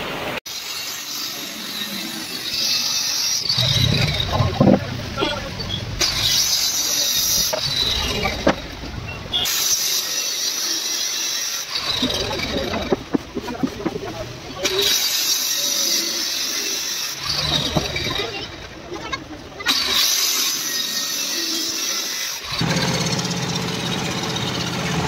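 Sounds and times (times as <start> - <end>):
electric saw cutting board: 0.5 - 4.8, 9.5 - 13.9, 14.6 - 18.4, 19.6 - 25.0.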